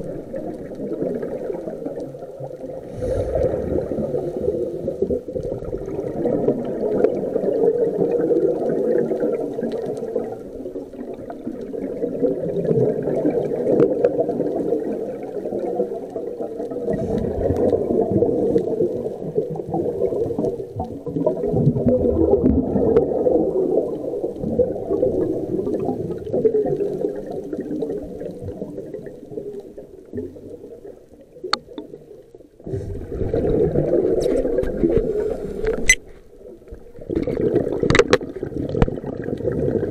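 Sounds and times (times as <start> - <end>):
exhaled bubbles underwater: 0.0 - 39.9
diver breathing through regulator: 2.8 - 5.0.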